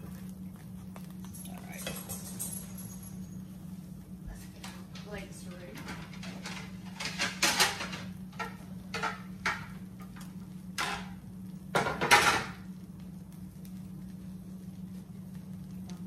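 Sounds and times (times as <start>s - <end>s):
steady low hum: 0.0s - 16.0s
kitchen things knocking and scraping: 4.6s - 12.6s.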